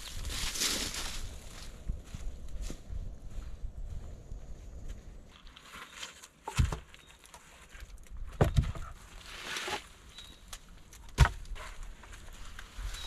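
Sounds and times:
rustling in dry leaves: 0.0 - 2.3, 8.9 - 10.5, 11.7 - 13.0.

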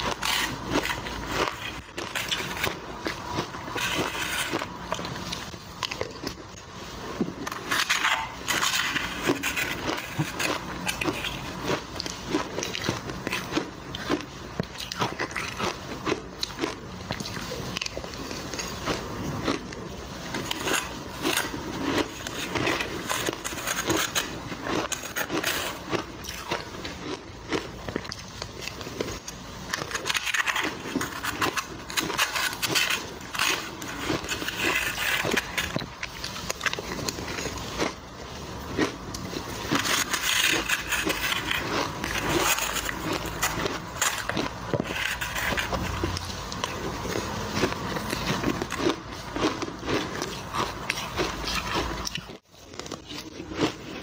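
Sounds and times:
metal spoon scraping ice: 0.0 - 4.7, 7.4 - 14.1, 20.4 - 26.6, 29.7 - 37.9, 39.4 - 49.0
ice crunching as chewed: 0.0 - 54.0.

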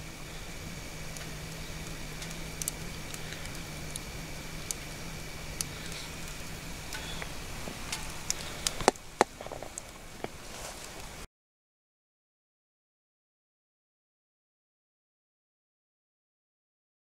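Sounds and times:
low steady hum: 0.0 - 11.3
wood fire hissing and crackling: 0.0 - 11.3.

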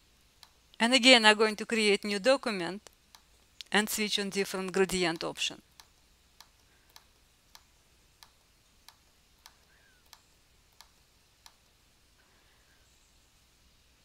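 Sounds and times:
faint low hum: 0.0 - 14.0
computer mouse clicking: 5.1 - 11.8.

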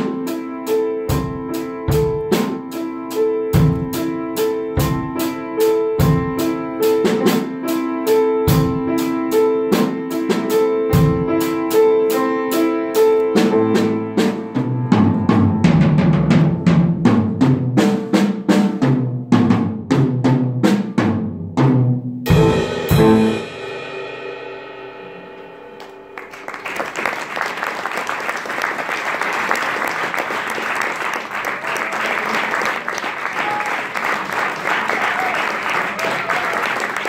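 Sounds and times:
drum kit: 0.0 - 26.8
grand piano chord: 22.3 - 26.7
audience applauding: 25.8 - 37.0.

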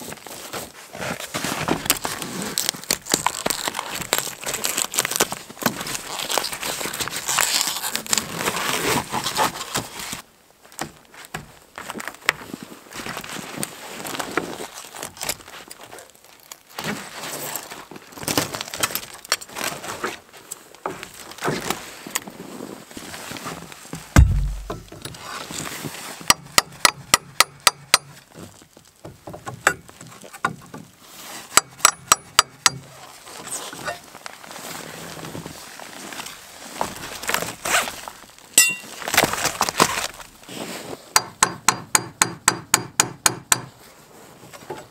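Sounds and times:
crunching in snow: 0.0 - 10.2, 33.0 - 41.1
hammer striking nail: 24.2 - 25.0, 26.3 - 28.1, 41.2 - 43.7
heavy thump: 24.2 - 25.0.

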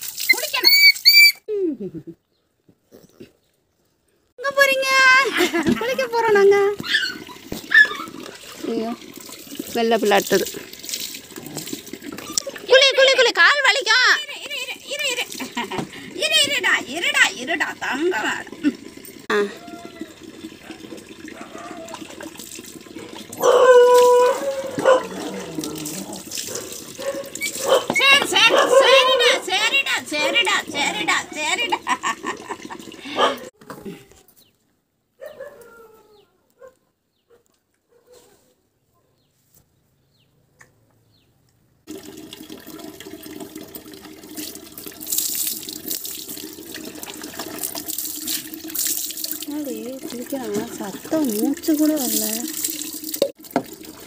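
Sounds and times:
water splashing: 0.0 - 1.2, 5.4 - 33.5, 41.9 - 54.0
puppy howling: 23.4 - 26.2.

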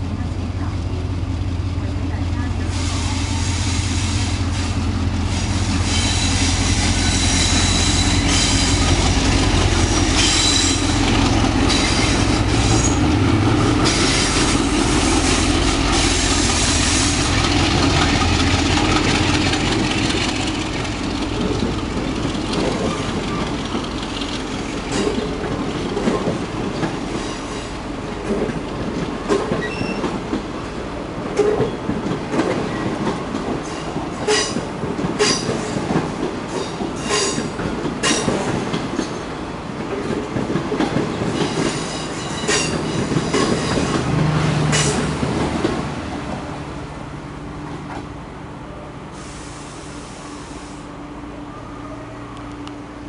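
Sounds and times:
locomotive low rumble: 0.0 - 36.4
train wheels clicking over rail joints: 4.3 - 45.9.

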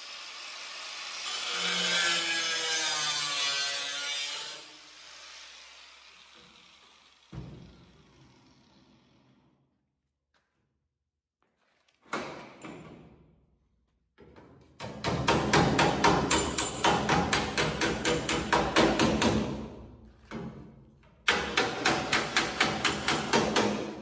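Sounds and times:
hammer on sheet metal: 14.8 - 19.8, 21.2 - 24.0.

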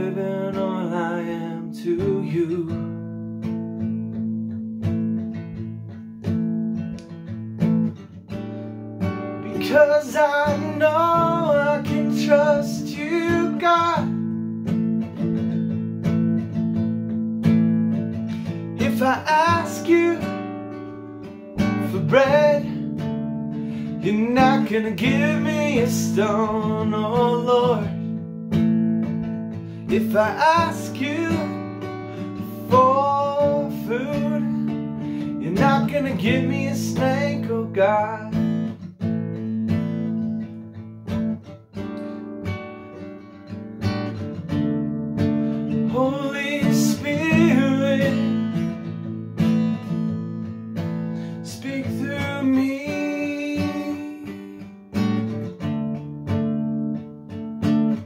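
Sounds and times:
man singing: 0.0 - 3.2, 9.2 - 14.4, 18.8 - 20.8, 21.6 - 23.0, 23.8 - 28.2, 29.8 - 38.6, 45.8 - 48.9, 51.3 - 54.8
acoustic guitar strumming: 0.0 - 58.0.

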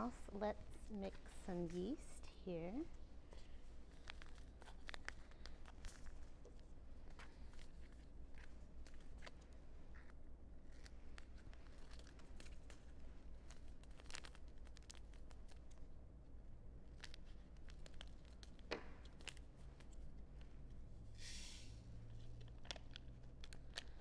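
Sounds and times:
packet rustling: 3.0 - 15.9, 16.8 - 20.7, 22.1 - 24.0
packet crinkling: 3.3 - 15.9, 16.8 - 20.5, 22.2 - 24.0.

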